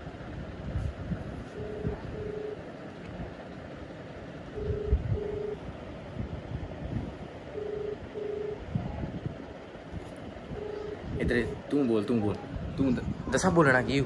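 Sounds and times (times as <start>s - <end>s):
telephone ringback tone: 1.6s - 2.6s, 4.6s - 5.6s, 7.5s - 8.6s, 10.5s - 11.0s.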